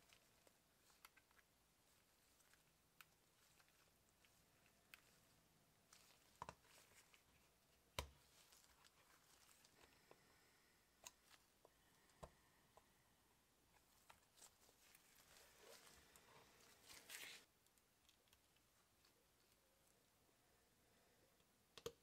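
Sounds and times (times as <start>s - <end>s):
faint plastic clicks and taps: 2.3s - 10.3s, 11.0s - 12.9s, 21.3s - 22.0s.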